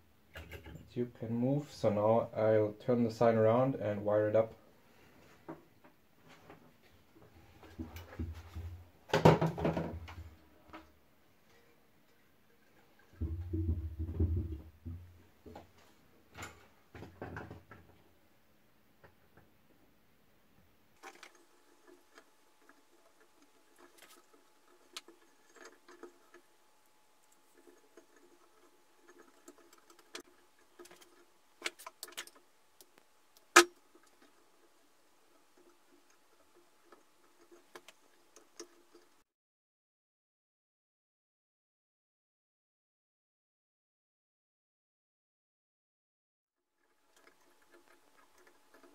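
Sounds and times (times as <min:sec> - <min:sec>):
hands working with wiring: 0:21.0 - 0:39.2.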